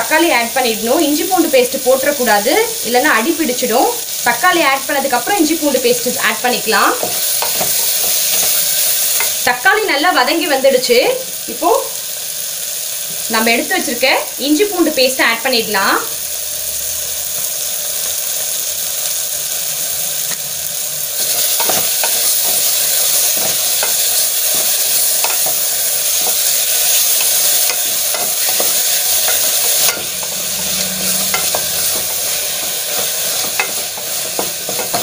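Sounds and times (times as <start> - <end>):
food sizzling in oil: 0.0 - 35.0
spatula scraping pot: 21.2 - 35.0.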